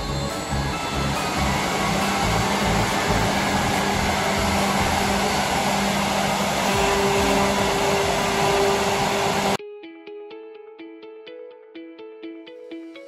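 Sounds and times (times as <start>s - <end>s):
high steady machine tone: 0.0s - 9.6s
milling machine whirring: 0.0s - 9.6s.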